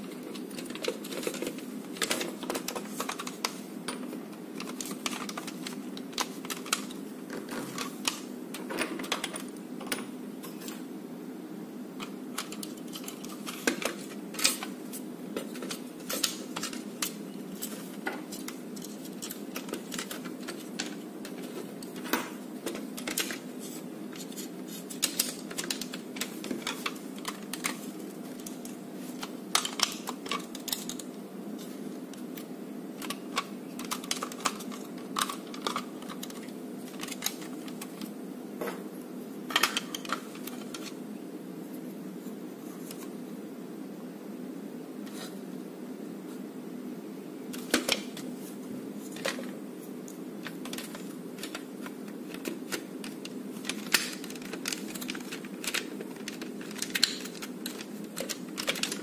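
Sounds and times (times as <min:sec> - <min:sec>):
plastic toy parts clicking: 0:50.4 - 0:59.0.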